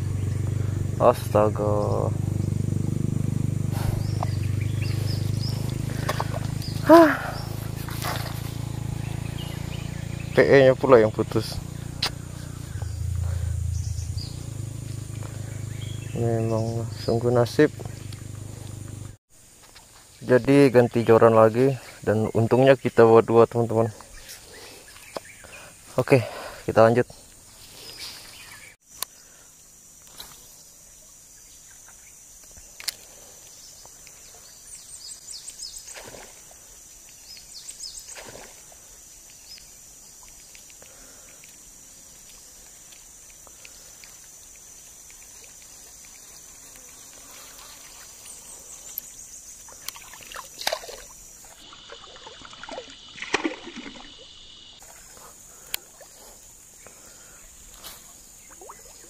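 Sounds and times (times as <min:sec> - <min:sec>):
high insect drone: 0:00.0 - 0:59.0
lure splashing in water: 0:38.0 - 0:56.5, 0:58.4 - 0:59.0.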